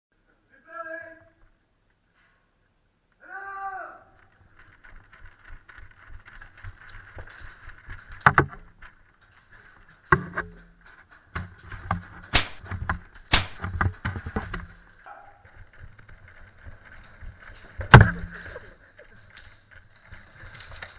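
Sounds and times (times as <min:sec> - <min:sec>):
gear knocks and clicks: 0:04.1 - 0:20.9
loud sharp cracks: 0:12.2 - 0:15.3.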